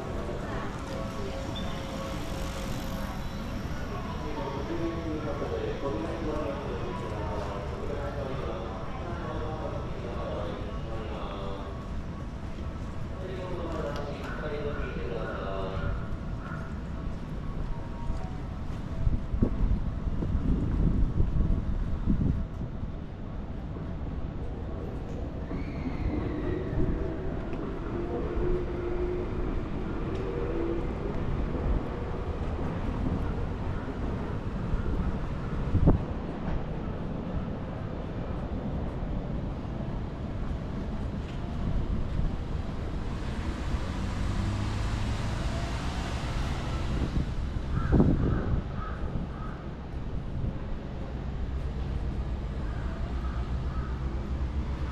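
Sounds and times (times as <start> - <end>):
electric train running past: 0.0 - 54.9
crow cawing: 47.7 - 49.6.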